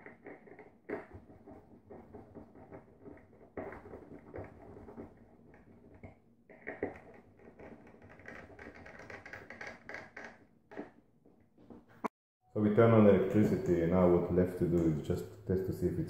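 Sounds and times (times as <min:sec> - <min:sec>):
hands tapping and rustling: 0:00.0 - 0:12.1.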